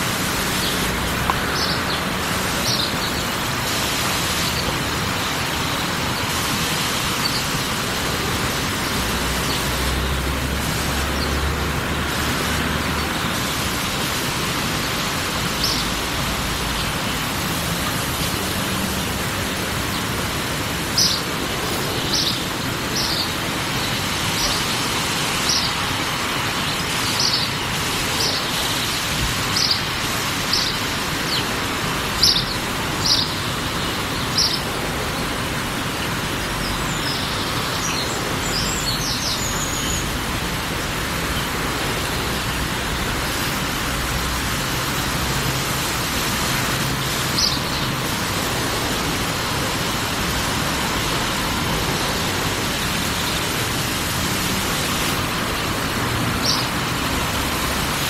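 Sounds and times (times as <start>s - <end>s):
small bird chirping: 32.2s - 33.4s.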